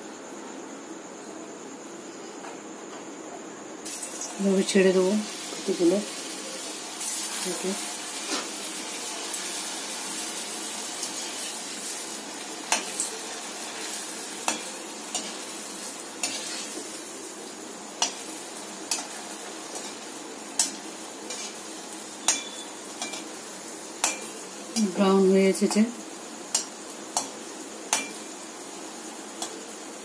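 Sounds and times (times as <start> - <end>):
dough frying in hot oil: 3.8 - 30.0
metal spoon clinking against pan: 14.4 - 15.4, 22.2 - 23.3, 24.0 - 24.3, 27.9 - 28.2.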